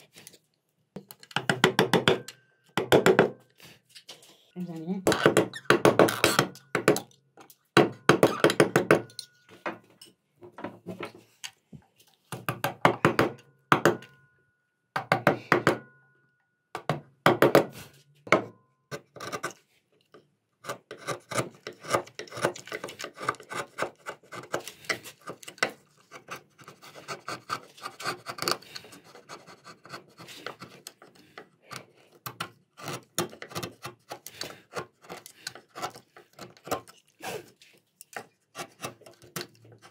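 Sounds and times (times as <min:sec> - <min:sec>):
chisel scraping through wood: 0:18.9 - 0:19.6, 0:20.6 - 0:39.9.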